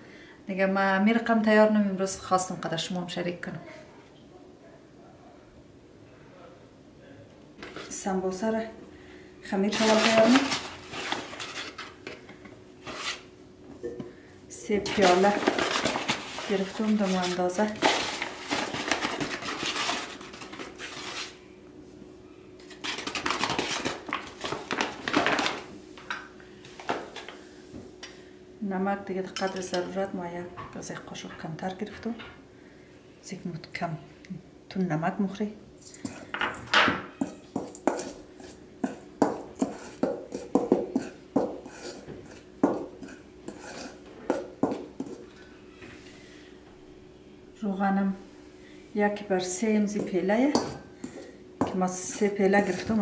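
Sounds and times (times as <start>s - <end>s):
paper bag rustling: 9.7s - 12.0s, 14.9s - 21.4s, 22.7s - 25.7s
metal spoon scraping steel bowl: 39.6s - 42.4s, 43.0s - 44.0s.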